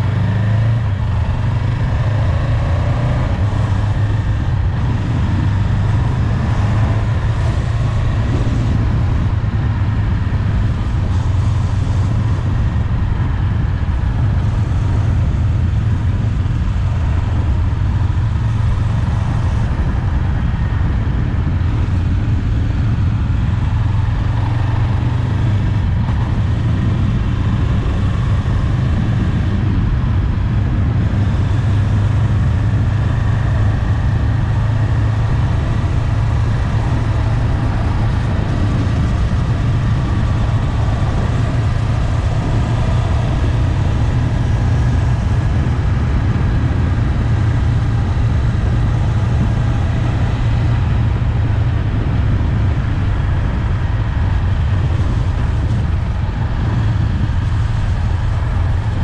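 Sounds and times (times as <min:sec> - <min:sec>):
motorcycle engine cruising: 0:00.0 - 0:59.0
wind on microphone: 0:00.0 - 0:59.0.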